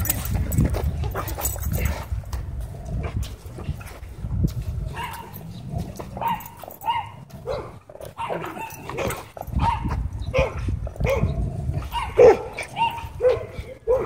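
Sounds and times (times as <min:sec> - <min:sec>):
dog yipping: 0:05.0 - 0:05.3, 0:06.2 - 0:11.2, 0:11.9 - 0:14.0.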